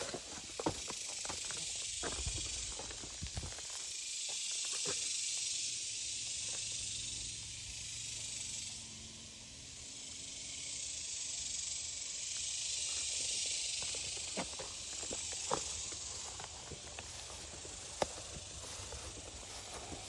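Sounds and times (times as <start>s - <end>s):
insect chorus hiss: 0.0s - 20.0s
faint footsteps in grass: 13.6s - 20.0s.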